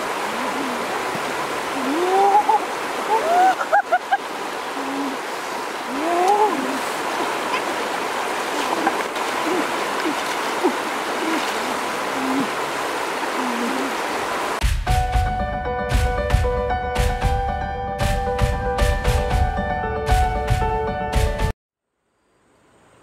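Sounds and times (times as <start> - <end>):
stream running over stones: 0.0 - 14.6.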